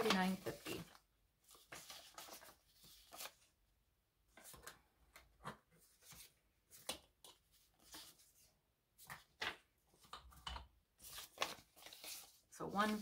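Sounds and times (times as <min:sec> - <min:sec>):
paper bills rustling: 0:00.0 - 0:03.5, 0:11.0 - 0:13.0.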